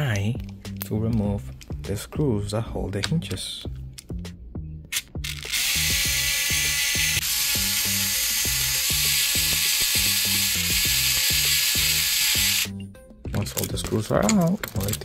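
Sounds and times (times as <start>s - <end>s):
background music with steady beat: 0.0s - 15.0s
electric screwdriver running: 5.2s - 12.8s.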